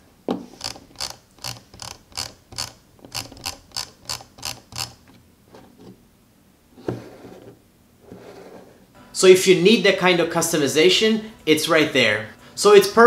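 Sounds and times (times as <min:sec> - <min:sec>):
scroll wheel ratchet clicks: 0:00.6 - 0:05.1.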